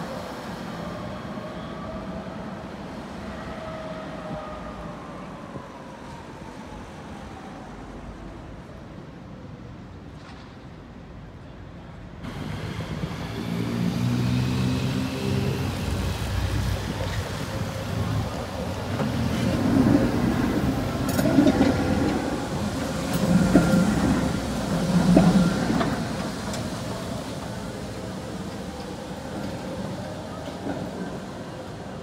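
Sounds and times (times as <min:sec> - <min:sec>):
tram running on tracks: 0:00.0 - 0:32.0.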